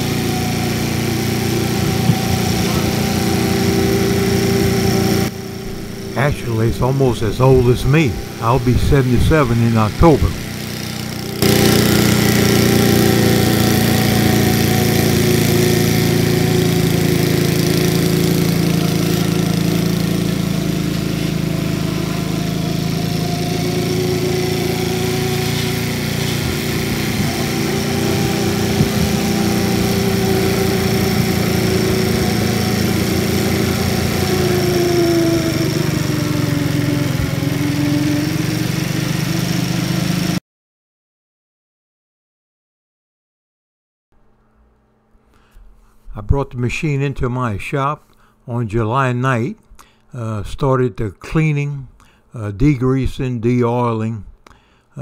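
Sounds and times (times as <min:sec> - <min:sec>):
riding lawnmower engine running: 0:00.0 - 0:40.4.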